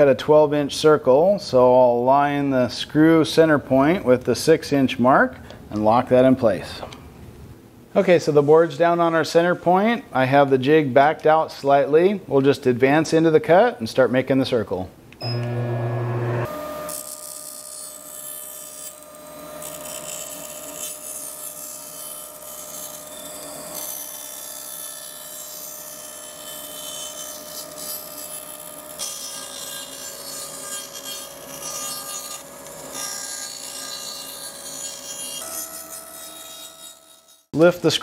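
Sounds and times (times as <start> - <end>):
bandsaw humming: 15.2 - 38.0
blade cutting plywood: 15.4 - 37.6.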